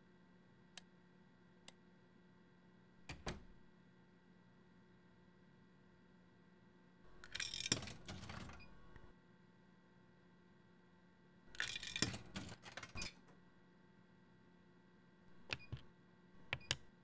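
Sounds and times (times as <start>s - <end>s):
coins rattling through vending machine: 7.2s - 8.6s, 11.6s - 13.2s.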